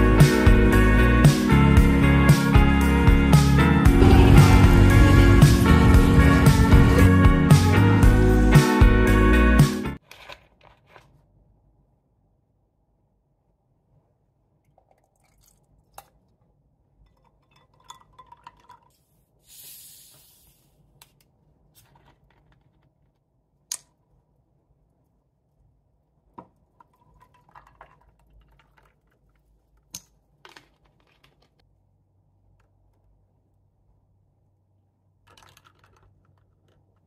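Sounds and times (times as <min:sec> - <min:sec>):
bottle opening hiss: 0:19.4 - 0:20.7.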